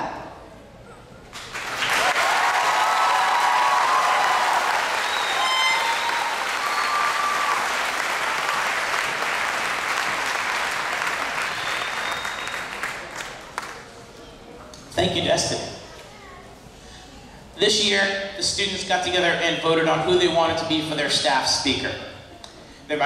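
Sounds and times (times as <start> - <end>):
audience applauding: 1.4 - 13.9
cheering shouts: 1.9 - 9.2.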